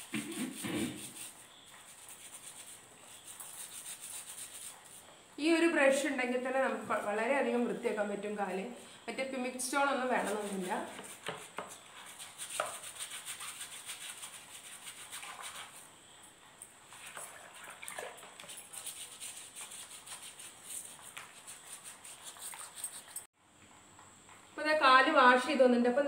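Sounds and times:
brush scrubbing skin: 0:00.0 - 0:05.0, 0:09.8 - 0:15.9, 0:16.9 - 0:23.3.

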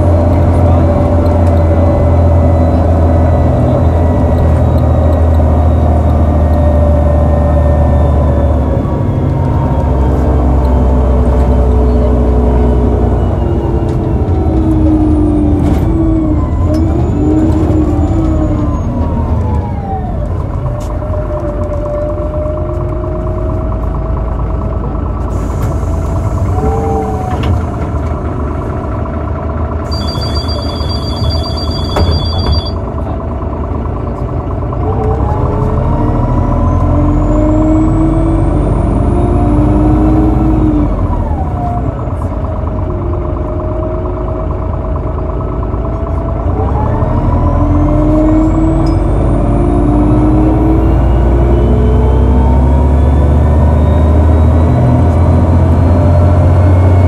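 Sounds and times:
bus drivetrain whine: 0:00.0 - 0:57.0
electronic beeps: 0:29.9 - 0:32.9.

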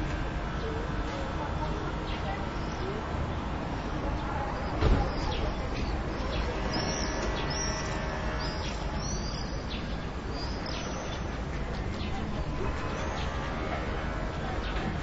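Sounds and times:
swallows twittering: 0:04.6 - 0:11.3.

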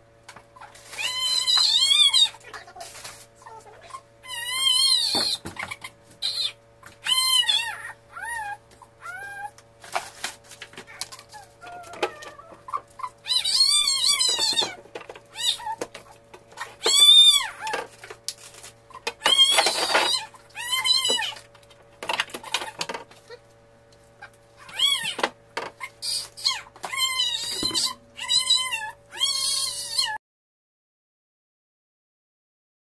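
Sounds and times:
pet animal high-pitched calls: 0:00.6 - 0:09.6, 0:10.8 - 0:18.0, 0:18.9 - 0:21.5, 0:24.2 - 0:30.2
steady hum: 0:02.0 - 0:29.2.

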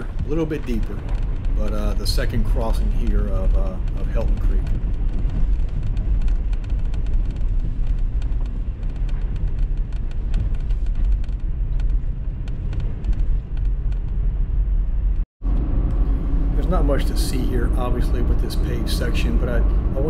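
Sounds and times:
sharp ticks and clicks: 0:00.0 - 0:15.2
vehicle engine rumble: 0:00.0 - 0:20.0.

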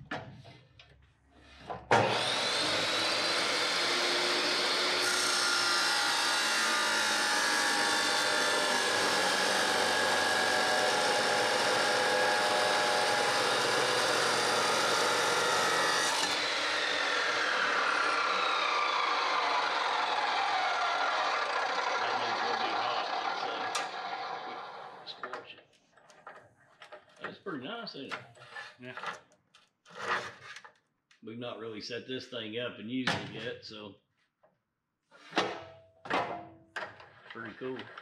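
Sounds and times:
chop saw cutting steel: 0:01.9 - 0:25.0
saw motor winding down: 0:02.0 - 0:25.1.

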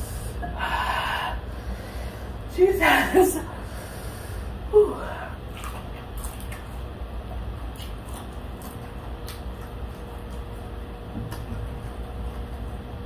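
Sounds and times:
low steady background hum: 0:00.0 - 0:13.0
wet eating mouth sounds: 0:05.3 - 0:13.0.

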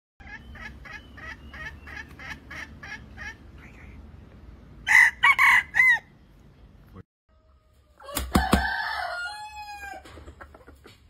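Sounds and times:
rooster crowing: 0:04.8 - 0:06.1, 0:07.4 - 0:10.0.

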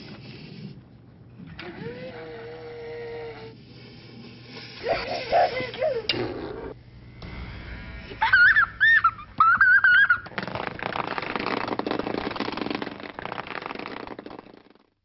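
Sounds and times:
boy squealing: 0:04.8 - 0:06.7, 0:08.2 - 0:10.3.

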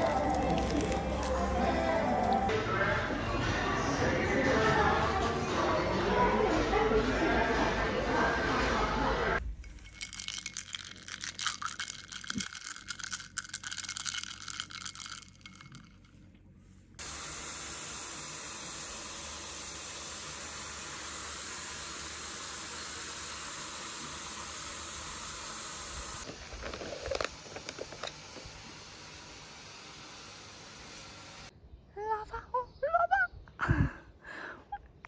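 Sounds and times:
ice cubes clinking in a glass: 0:00.0 - 0:01.3, 0:09.6 - 0:16.1.

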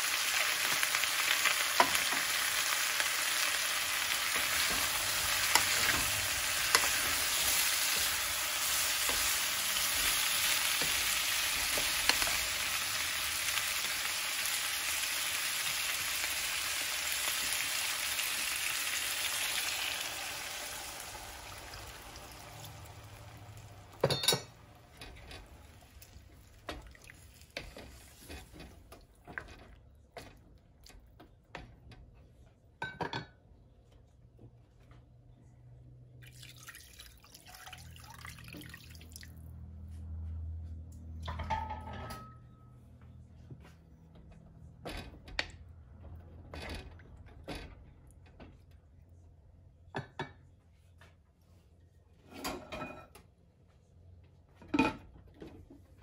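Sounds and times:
chicken sizzling in a pan: 0:00.0 - 0:25.0.

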